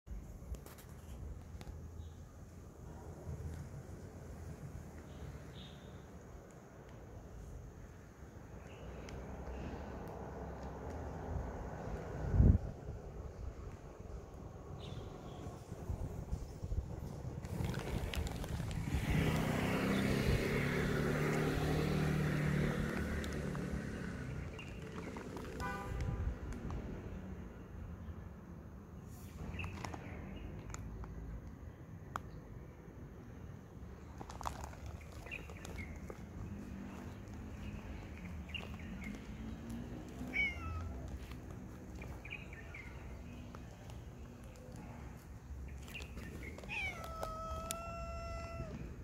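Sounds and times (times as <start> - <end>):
vehicle passing: 17.5 - 27.5, 35.3 - 49.0
cat meowing: 40.1 - 41.1, 46.5 - 49.0.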